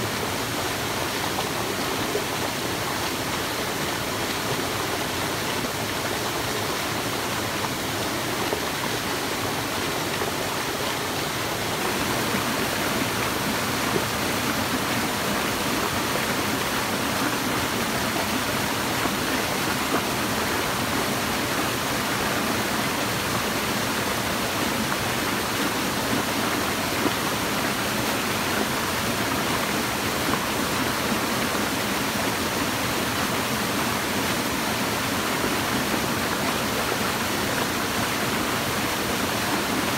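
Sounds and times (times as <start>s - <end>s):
stream running over rocks: 0.0s - 39.9s.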